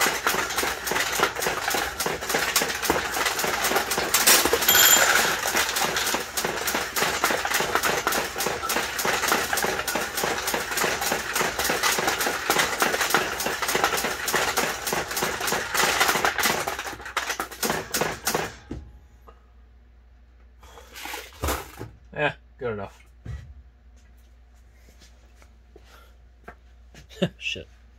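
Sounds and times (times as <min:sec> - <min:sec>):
steel balls rattling through pins: 0:00.0 - 0:18.6.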